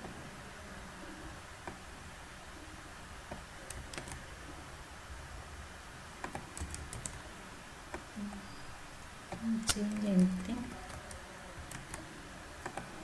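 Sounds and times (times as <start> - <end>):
computer keyboard keystrokes: 3.7 - 4.2, 6.2 - 7.2, 9.3 - 12.0.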